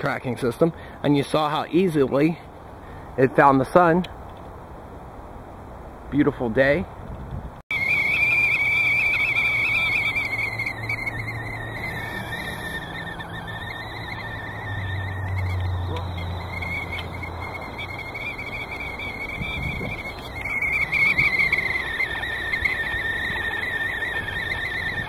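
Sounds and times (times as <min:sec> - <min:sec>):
kettle whistling: 0:07.7 - 0:25.0.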